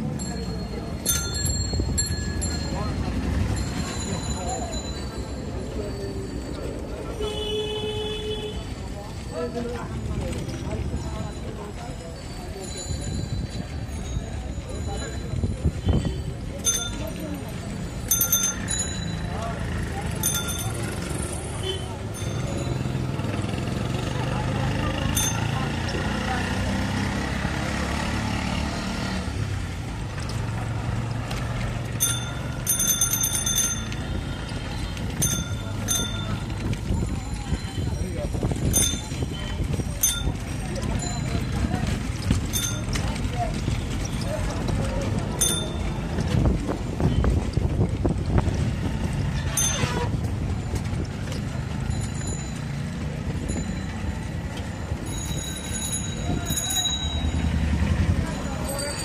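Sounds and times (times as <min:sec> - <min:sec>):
bicycle bell ringing: 0:00.0 - 0:07.5, 0:09.1 - 0:26.4, 0:31.8 - 0:44.5, 0:45.1 - 0:46.5, 0:49.3 - 0:59.0
traffic engine hum: 0:00.0 - 0:59.0
rickshaw knocks and rattles: 0:15.7 - 0:55.1
high ringing tones: 0:32.0 - 0:34.4.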